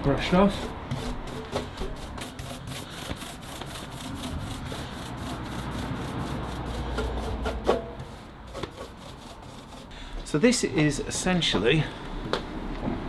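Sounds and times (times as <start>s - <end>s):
brush sweeping a door: 0.1s - 10.0s.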